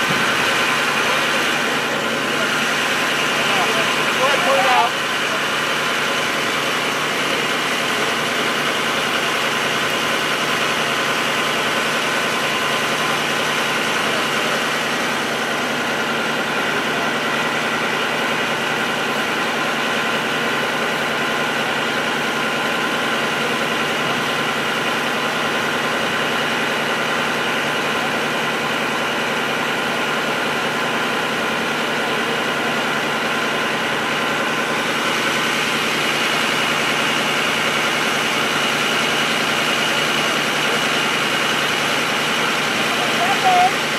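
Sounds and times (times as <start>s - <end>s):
fire engine engine drone: 0.0s - 43.9s.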